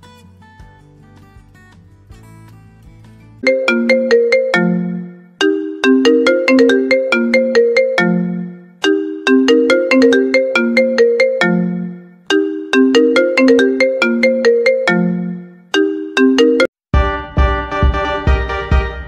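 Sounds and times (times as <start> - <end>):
smartphone ringtone melody: 3.4 - 16.8.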